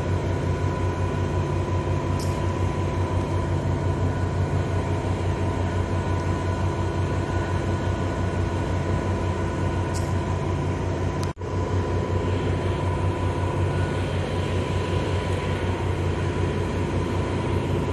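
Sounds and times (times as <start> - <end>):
heavy machinery drone: 0.0 - 17.9.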